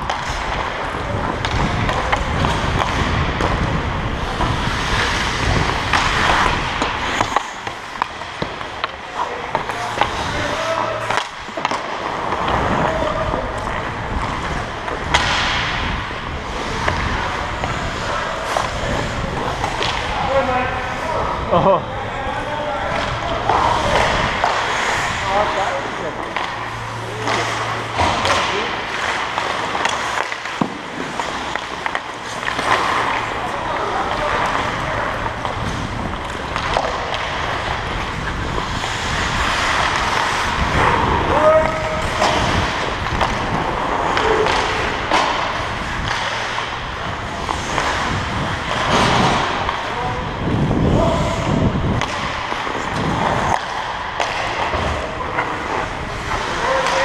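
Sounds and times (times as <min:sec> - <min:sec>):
sharp crack: 0:00.0 - 0:20.2
skate blades scraping ice: 0:00.0 - 0:57.0
wind on microphone: 0:48.0 - 0:53.4.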